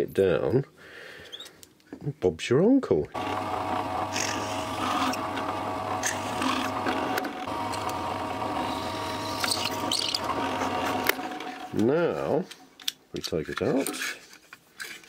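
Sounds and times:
drill bit scratchy cutting: 3.2 - 11.9
pillar drill motor humming: 3.2 - 11.9.

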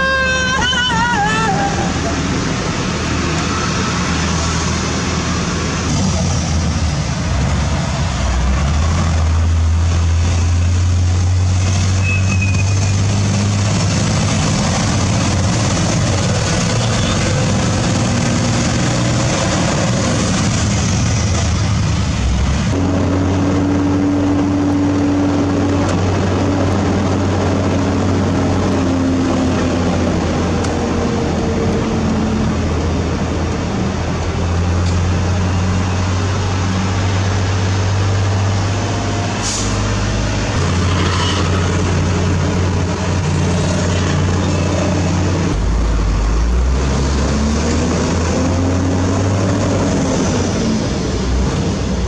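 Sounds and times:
truck diesel engine running: 0.0 - 12.0, 12.8 - 52.0
road noise: 0.0 - 52.0.

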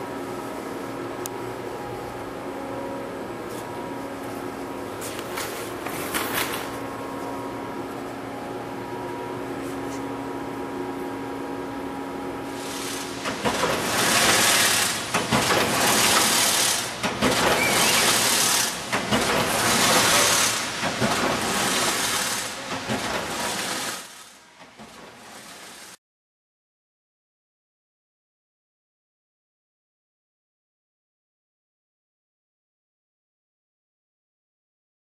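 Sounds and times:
fence weaving machine running: 12.5 - 26.0
machine clattering hiss: 12.5 - 26.0.

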